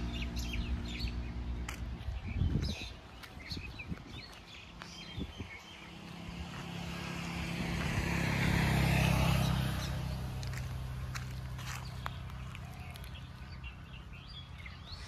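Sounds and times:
vehicle passing on road: 0.0s - 15.0s.

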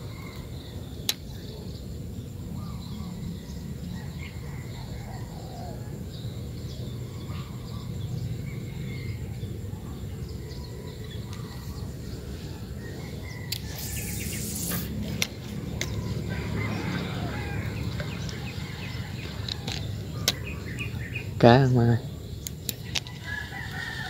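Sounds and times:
low outdoor rumble: 0.0s - 24.0s
small birds chirping: 0.0s - 24.0s
brief hiss: 13.6s - 15.0s.

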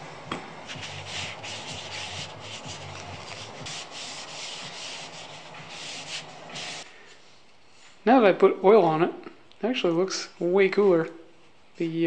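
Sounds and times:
paper towel rubbing wooden spoon: 0.7s - 6.8s.

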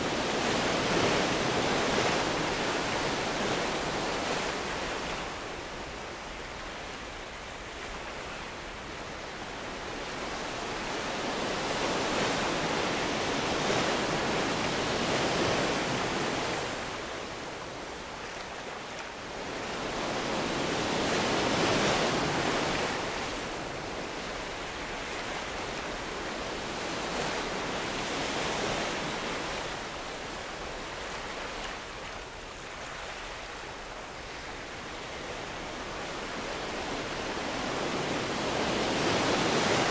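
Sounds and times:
waves breaking on beach: 0.0s - 39.9s.

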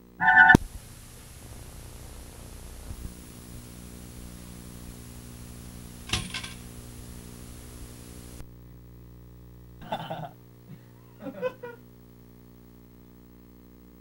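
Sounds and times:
thin high whine: 0.0s - 0.6s
tape playback hum and hiss: 0.0s - 14.0s
clattery rattle of clicks: 6.1s - 6.6s.

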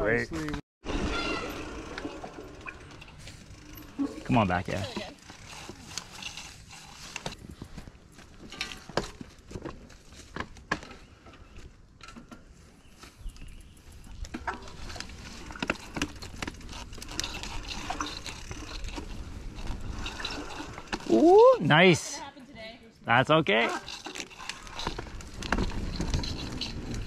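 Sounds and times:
bike knocks and clatter: 8.3s - 13.1s, 23.7s - 27.0s.

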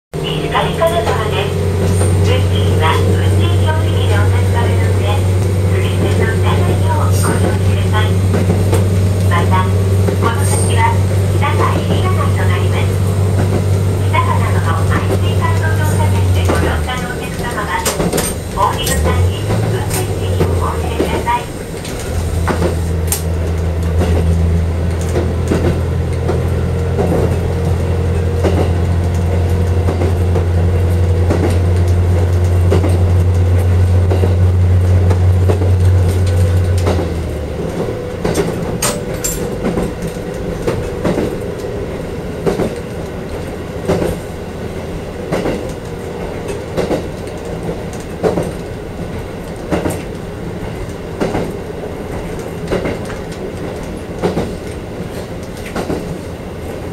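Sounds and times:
diesel engine droning: 0.1s - 40.3s
wheels clicking over rail joints: 0.8s - 56.9s.

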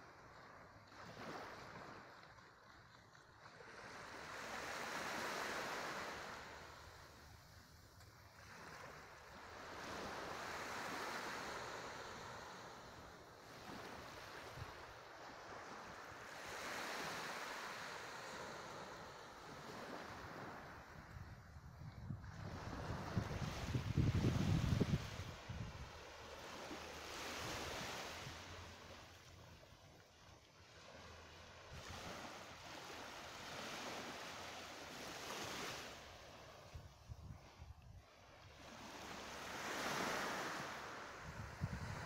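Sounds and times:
waves washing onto sandy shore: 0.0s - 21.2s, 22.2s - 42.0s.

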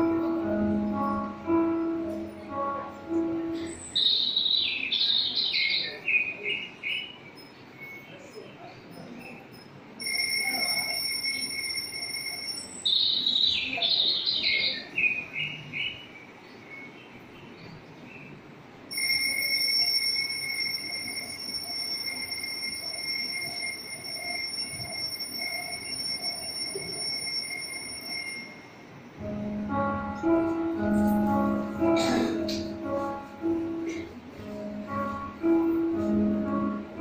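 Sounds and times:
bird chirps: 3.6s - 9.7s.

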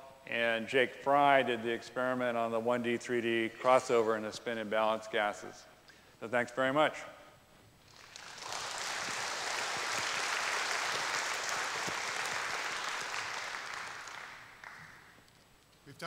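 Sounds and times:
audience applauding: 7.9s - 15.2s.

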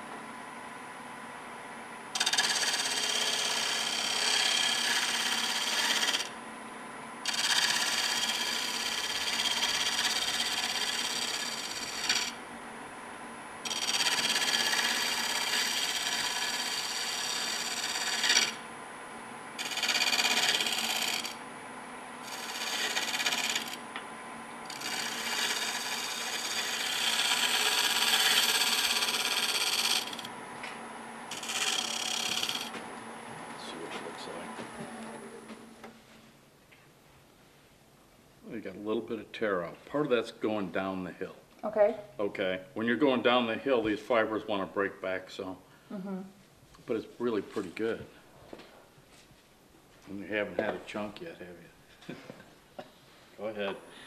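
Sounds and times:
gouge cutting wood on lathe: 2.1s - 6.4s, 7.2s - 12.4s, 13.6s - 18.6s, 19.6s - 21.4s, 22.2s - 23.8s, 24.6s - 30.3s, 31.3s - 32.8s
lathe running: 2.1s - 6.4s, 7.2s - 12.4s, 13.6s - 18.7s, 19.6s - 21.4s, 22.2s - 23.8s, 24.6s - 30.4s, 31.3s - 32.9s.

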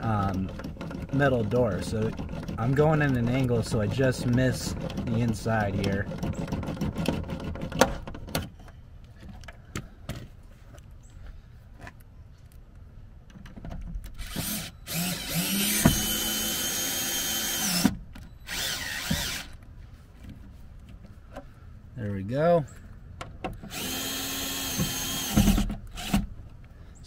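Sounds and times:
cordless drill boring into plastic: 14.2s - 17.9s, 18.5s - 19.5s, 23.7s - 26.2s.

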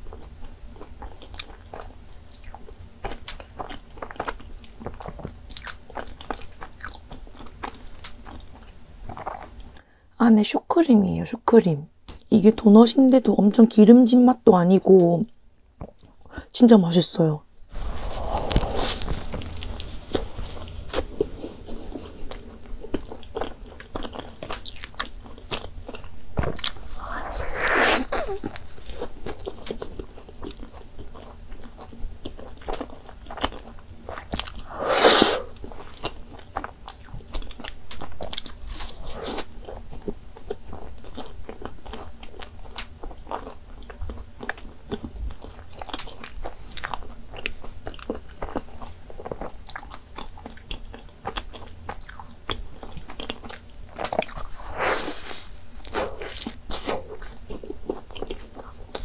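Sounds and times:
biting and chewing: 0.1s - 9.8s, 18.2s - 59.0s
wet mouth clicks: 26.6s - 29.0s.

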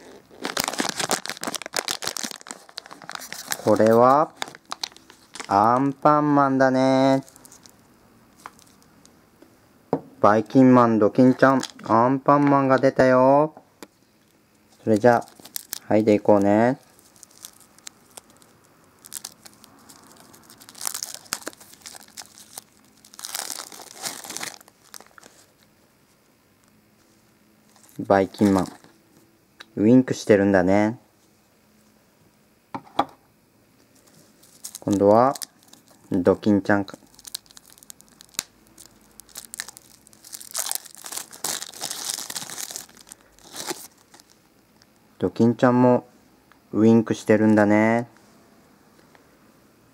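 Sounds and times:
plastic wrapping crinkling and tearing: 0.0s - 6.0s, 7.1s - 8.9s, 14.7s - 25.7s, 27.7s - 29.0s, 33.9s - 44.9s.

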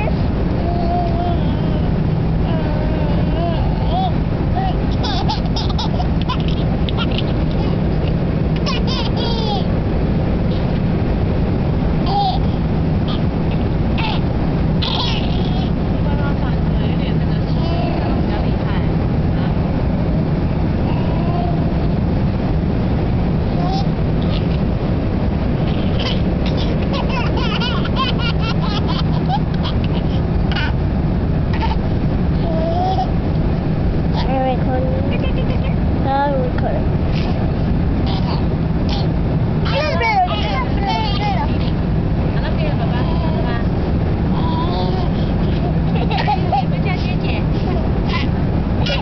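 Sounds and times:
airliner cabin drone: 0.0s - 49.0s
baby giggling: 2.5s - 9.7s, 12.0s - 15.8s, 17.5s - 18.3s, 23.6s - 24.6s, 25.6s - 30.8s, 31.5s - 33.2s, 37.1s - 37.4s, 38.0s - 41.8s, 44.4s - 49.0s.

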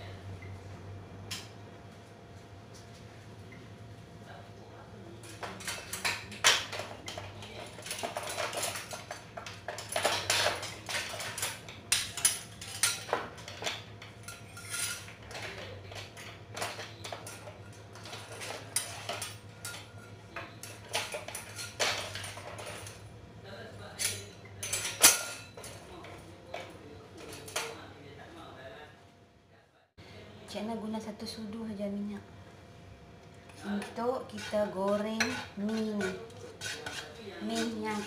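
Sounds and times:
steady low hum: 0.0s - 38.0s
metal utensils clinking: 5.2s - 23.1s, 23.9s - 27.8s, 33.7s - 38.0s.

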